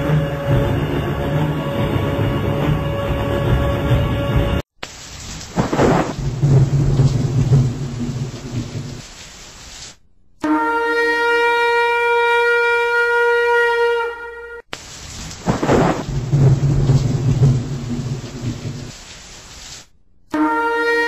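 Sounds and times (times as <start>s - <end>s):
long horn blast: 0.0s - 4.6s, 10.4s - 14.7s, 20.3s - 21.0s
rain: 0.0s - 10.0s, 14.7s - 19.9s
loud thunderclap: 5.3s - 9.1s, 15.1s - 19.0s
rumbling thunder: 5.4s - 9.1s, 15.0s - 19.0s.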